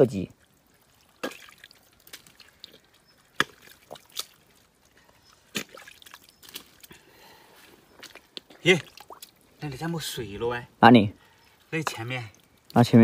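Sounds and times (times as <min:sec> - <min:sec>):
hands squelching in mud: 0:00.5 - 0:09.5
wet smacks: 0:00.9 - 0:07.0, 0:08.0 - 0:09.4.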